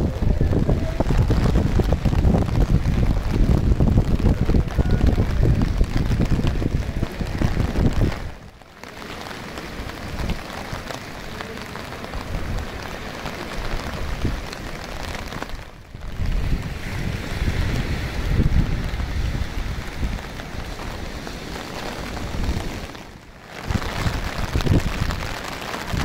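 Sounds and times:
rain on wet paving: 0.0s - 26.0s
small waves breaking: 0.0s - 26.0s
wind buffeting microphone: 0.0s - 26.0s.

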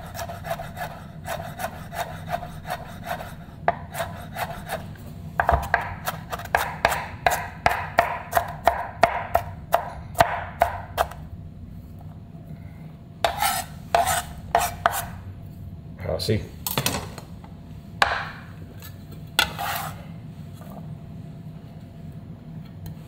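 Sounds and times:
knife chopping on cutting board: 0.1s - 4.8s, 5.4s - 11.2s, 13.2s - 15.2s.

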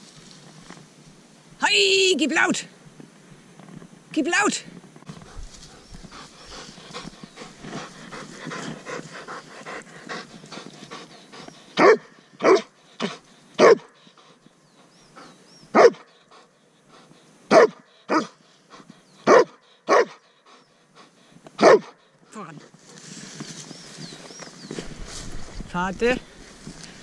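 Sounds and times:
dog panting hard: 5.1s - 15.4s, 16.1s - 17.3s, 17.9s - 22.2s
dog barking loudly: 11.8s - 13.9s, 15.7s - 16.1s, 17.5s - 18.4s, 19.2s - 20.2s, 21.6s - 22.0s.

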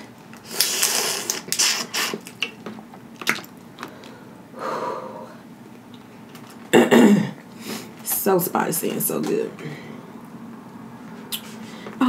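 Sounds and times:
wet sucking and slurping: 0.4s - 2.5s.

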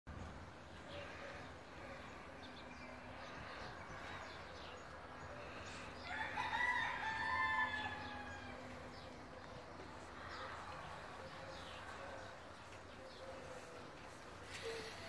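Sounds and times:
rooster crowing: 6.0s - 8.9s.

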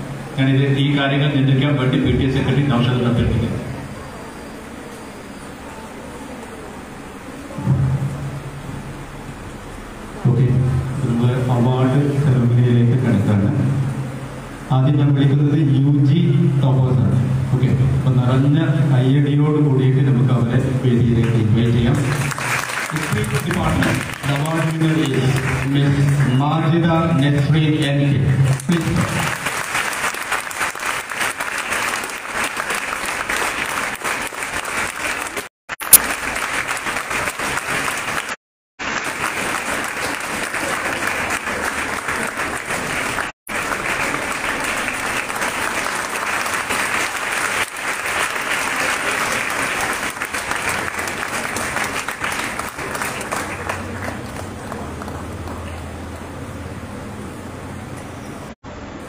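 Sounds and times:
audience clapping: 21.2s - 56.4s.

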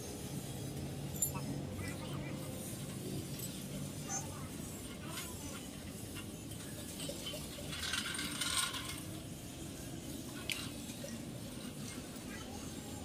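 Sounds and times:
metal parts clinking and scraping: 6.0s - 9.3s.

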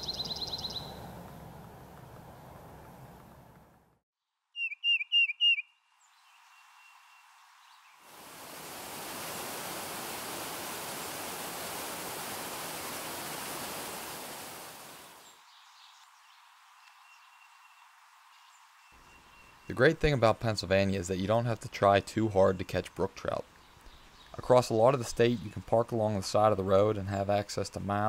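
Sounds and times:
bird chirping: 0.0s - 1.1s, 4.5s - 8.0s, 15.1s - 20.2s
waterfall pouring into a pool: 8.1s - 15.2s.

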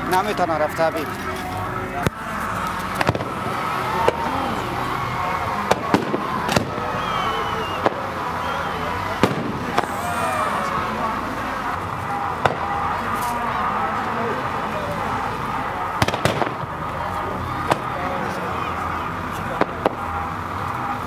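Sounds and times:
fireworks bangs and pops: 2.0s - 4.3s, 5.6s - 6.9s, 7.6s - 8.2s, 9.2s - 10.0s, 11.9s - 13.4s, 16.0s - 18.4s, 19.3s - 20.9s.

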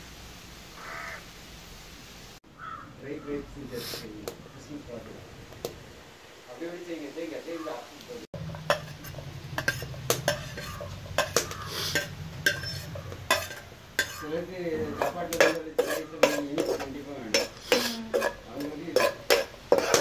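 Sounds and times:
onions sizzling in oil: 0.0s - 2.8s, 3.7s - 20.0s
metal spoon scraping a pan: 8.4s - 20.0s.

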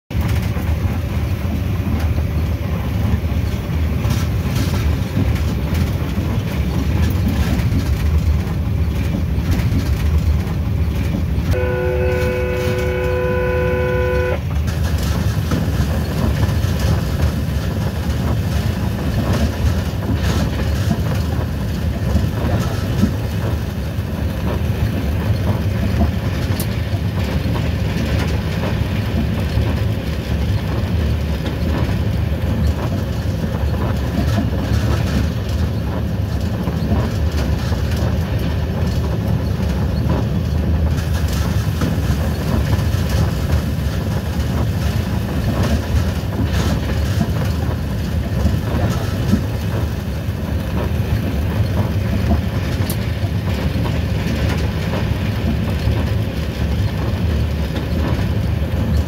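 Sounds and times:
train running low rumble: 0.0s - 59.0s
train horn blast: 11.5s - 14.5s.

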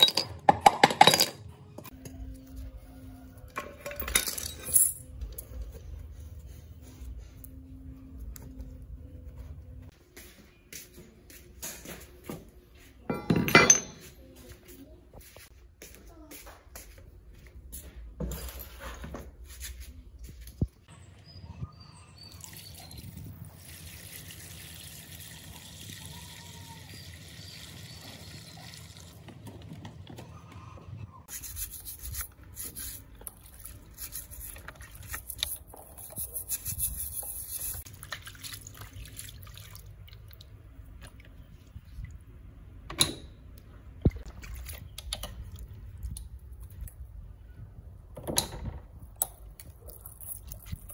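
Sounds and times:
water sloshing and splashing: 37.8s - 42.3s, 44.0s - 46.1s.

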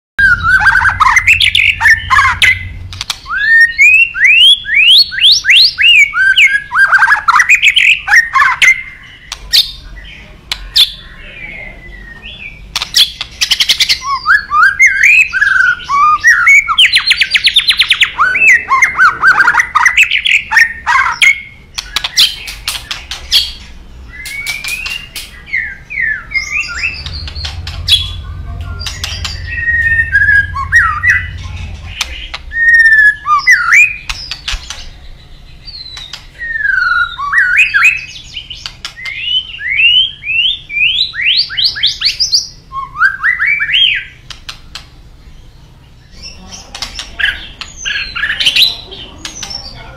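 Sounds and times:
bird whistling song: 0.2s - 10.1s, 10.7s - 49.7s
buzzy bird trill: 0.2s - 10.1s, 10.7s - 49.9s
bird sharp clicks: 2.9s - 3.4s, 12.7s - 13.9s, 21.7s - 23.5s, 24.2s - 25.6s, 44.2s - 45.0s.

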